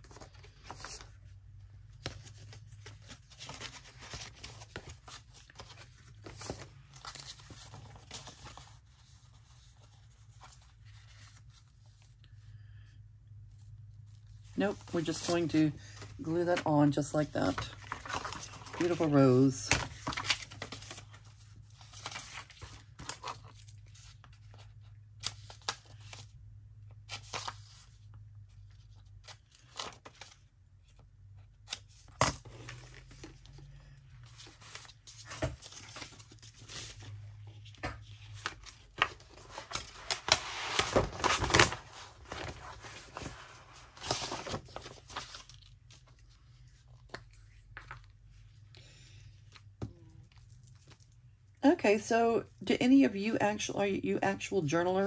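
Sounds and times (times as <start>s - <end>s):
paper rustling and crinkling: 0.0s - 12.4s, 13.6s - 26.3s, 31.6s - 48.8s.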